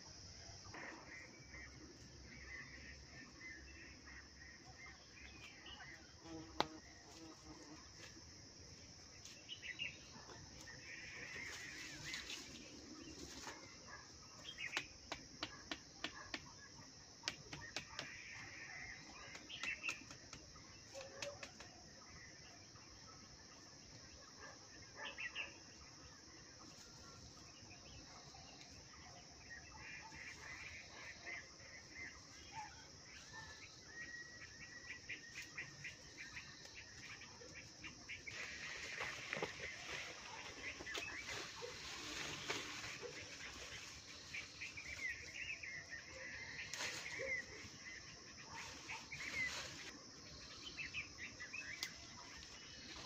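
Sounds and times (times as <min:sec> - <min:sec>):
leafy branches rustling: 0:11.2 - 0:13.7, 0:38.2 - 0:45.4, 0:46.5 - 0:47.7, 0:48.6 - 0:50.0.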